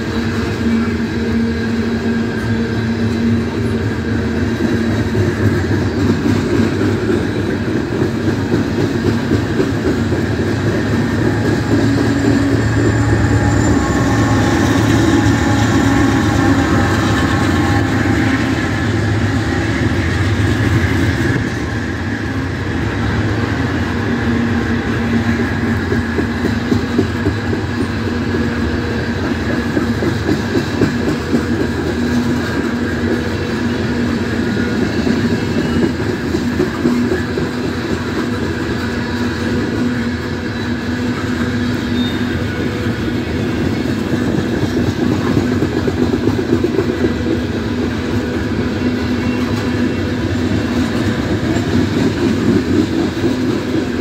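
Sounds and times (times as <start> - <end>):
diesel locomotive hum: 0.0 - 54.0
train wheels clacking over rail joints: 0.0 - 54.0.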